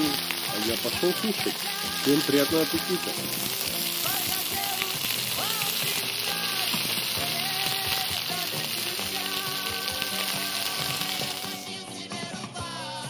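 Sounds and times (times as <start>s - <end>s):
food sizzling in a frying pan: 0.0s - 11.8s
background music: 0.0s - 13.0s.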